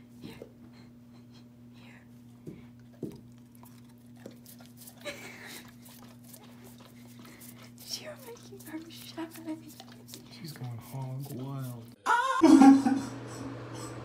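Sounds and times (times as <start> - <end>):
dog licking clicks and smacks: 2.9 - 12.0.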